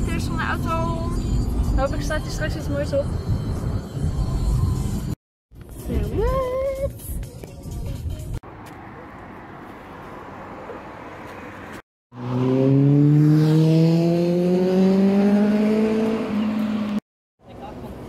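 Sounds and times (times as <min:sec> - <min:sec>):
car engine accelerating: 0:12.1 - 0:17.0.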